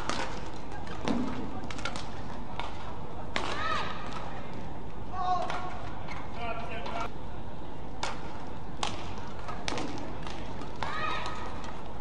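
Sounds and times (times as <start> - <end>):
rackets hitting shuttlecock: 0.0 - 4.4, 8.0 - 11.9.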